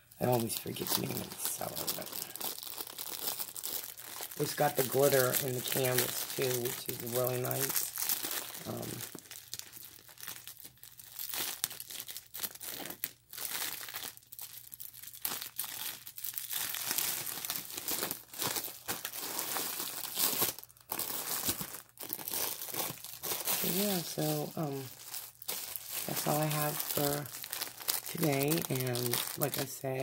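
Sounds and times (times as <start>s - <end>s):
plastic wrapping crinkling: 0.0s - 30.0s.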